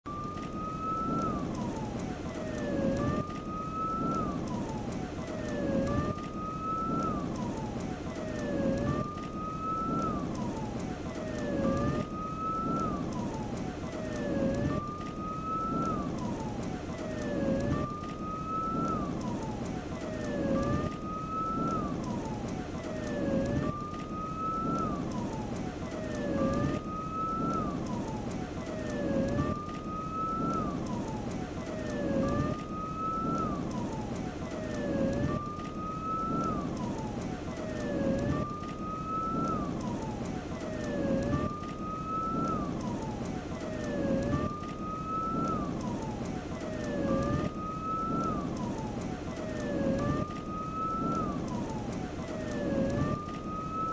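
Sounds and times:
emergency siren wailing: 0.1 - 53.9
low rumbling crackling noise: 0.1 - 53.9.

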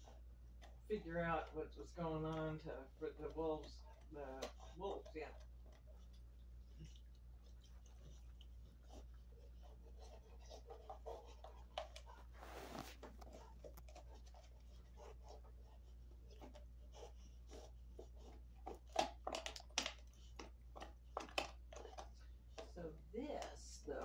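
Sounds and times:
dog chewing crunches: 0.0 - 24.0.

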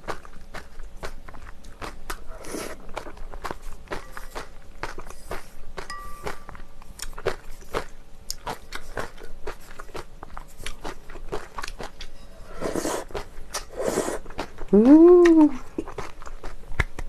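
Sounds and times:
wet chewing: 0.0 - 17.0
slurping noodles: 2.3 - 2.9, 12.5 - 14.3.

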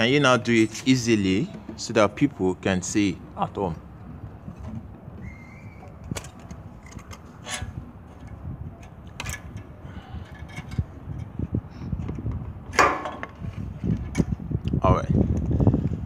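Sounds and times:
light metal scraping: 5.9 - 11.6.

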